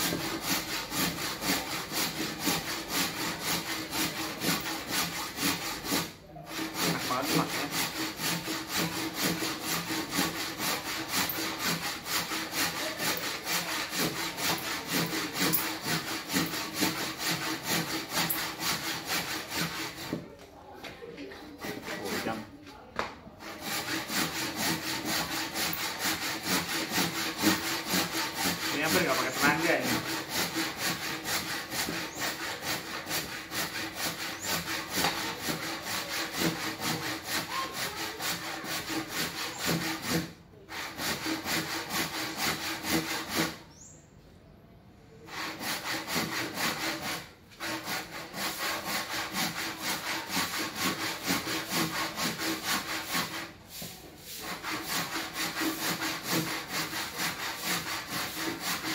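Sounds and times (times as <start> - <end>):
hand saw cutting timber: 0.0 - 20.4, 21.2 - 22.6, 23.3 - 43.8, 45.2 - 58.9.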